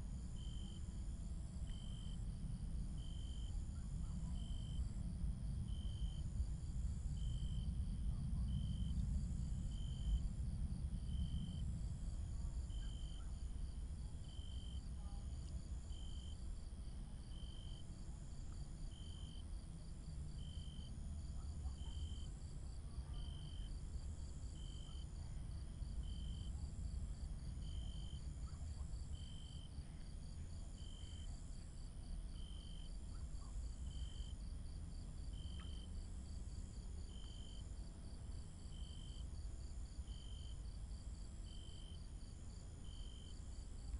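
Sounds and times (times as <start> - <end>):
insects chirping: 12.4 - 19.6, 23.2 - 43.9.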